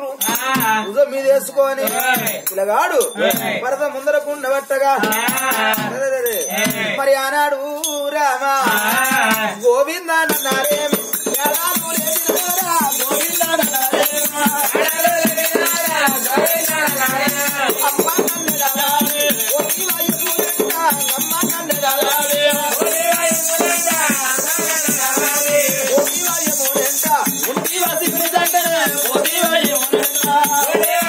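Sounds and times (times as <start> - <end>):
ankle bells jingling: 0.0 - 3.6, 5.0 - 31.0
man singing a devotional chant: 0.0 - 31.0
drum beat: 0.2 - 0.9, 1.9 - 2.6, 5.0 - 6.0, 6.6 - 7.0, 8.7 - 9.6, 10.3 - 31.0.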